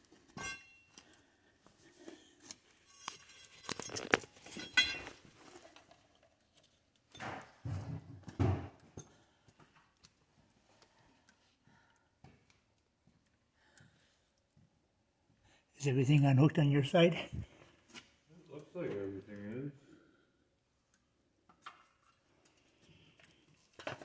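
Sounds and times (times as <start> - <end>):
clicks and clinks of handling tools: 2.5 - 5.2.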